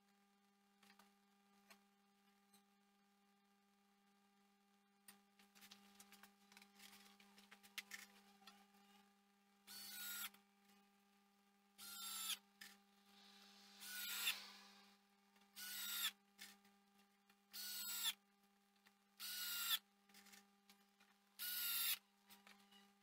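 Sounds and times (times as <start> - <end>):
faint steady hum: 0.0 - 23.0
cordless drill whining: 9.7 - 10.3, 11.8 - 12.4, 13.2 - 14.9, 15.6 - 16.1, 17.6 - 18.2, 19.2 - 19.8.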